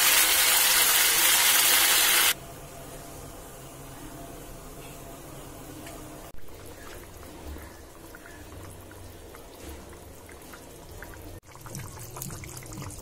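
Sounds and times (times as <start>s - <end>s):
curry bubbling in a pan: 6.5s - 13.0s.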